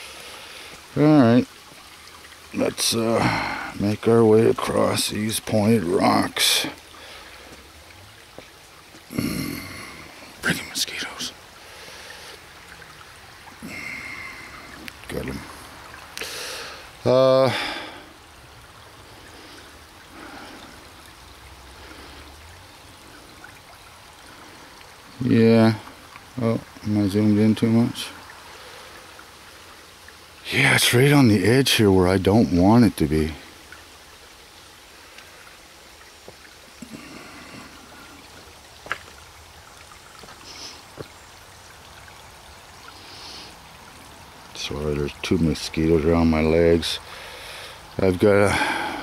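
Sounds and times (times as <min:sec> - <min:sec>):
stream trickling over rocks: 0:00.0 - 0:49.0.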